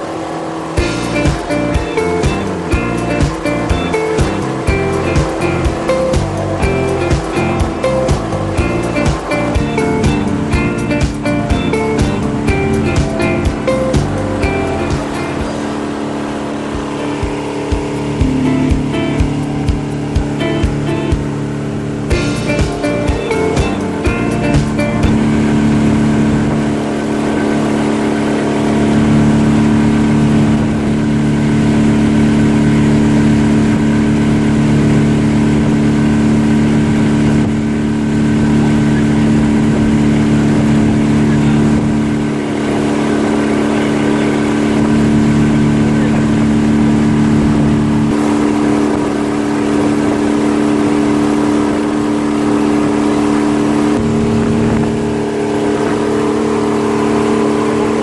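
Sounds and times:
wind: 0:00.0 - 0:01.7, 0:12.2 - 0:23.1, 0:24.6 - 0:58.0
boat engine running: 0:00.0 - 0:58.0
water rushing: 0:00.0 - 0:58.0.

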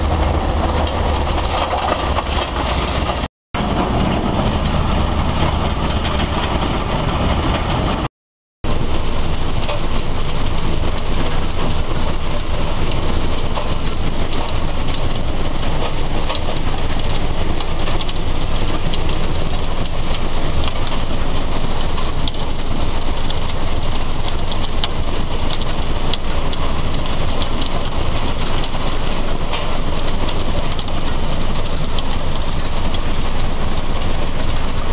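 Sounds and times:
rock crusher rattling: 0:00.0 - 0:08.1.

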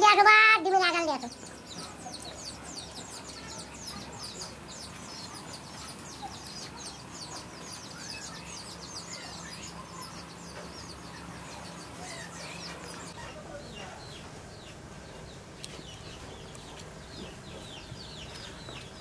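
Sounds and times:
many birds chirping: 0:00.0 - 0:19.0.

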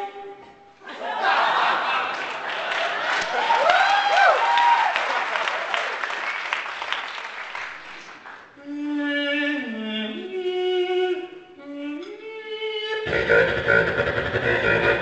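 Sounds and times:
applause: 0:02.0 - 0:08.5.

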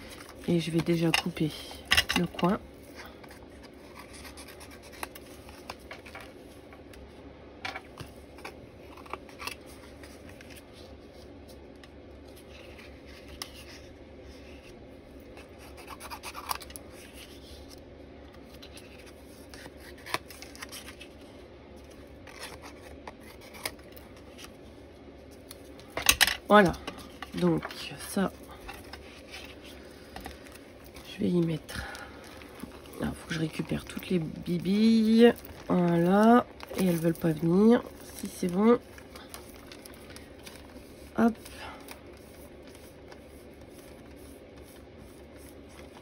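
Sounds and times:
paper being handled and rubbed: 0:12.3 - 0:17.8, 0:27.4 - 0:46.0.

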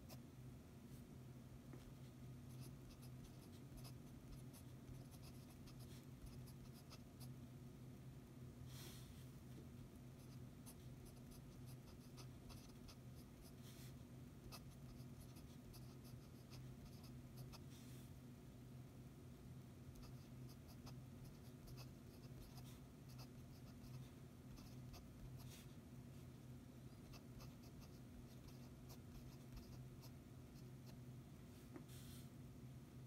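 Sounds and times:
steady low hum: 0:00.0 - 0:33.0
pen nib scratching on paper: 0:02.5 - 0:07.3, 0:10.2 - 0:13.6, 0:14.4 - 0:17.6, 0:20.0 - 0:25.7, 0:27.0 - 0:31.0.

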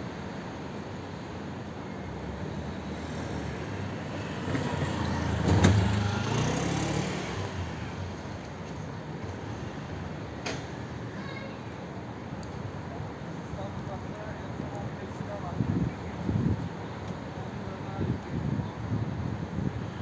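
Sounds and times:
vehicle passing by: 0:02.2 - 0:08.2.

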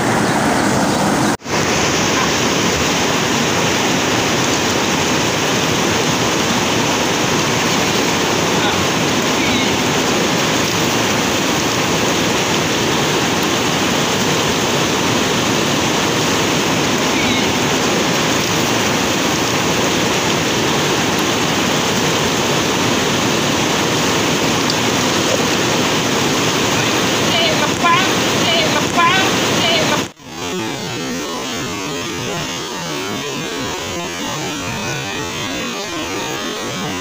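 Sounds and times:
river rushing through rapids: 0:00.0 - 0:30.2.

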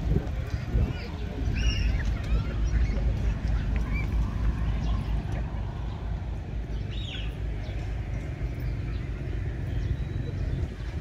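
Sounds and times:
steady low rumble: 0:00.0 - 0:11.0
bird chirp: 0:05.8 - 0:11.0.

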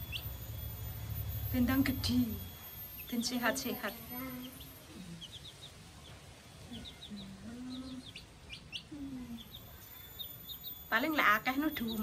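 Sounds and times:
chicks peeping: 0:00.0 - 0:00.5, 0:02.8 - 0:12.0
lower drawn-out tones: 0:00.0 - 0:05.2.

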